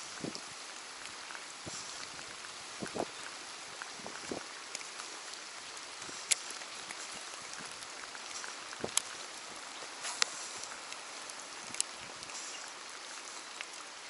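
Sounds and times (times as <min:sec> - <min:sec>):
rain falling on water: 0:00.0 - 0:14.0
sharp ticks: 0:06.2 - 0:06.6.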